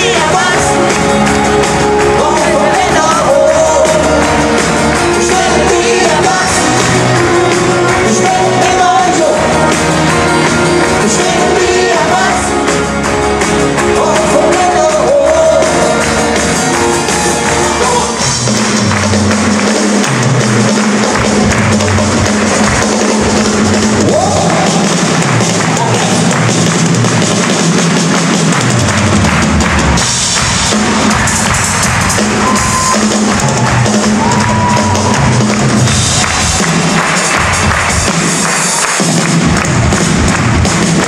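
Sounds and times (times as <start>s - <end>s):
lead singer singing: 0.0s - 18.3s
live pop-rock band: 0.0s - 41.0s.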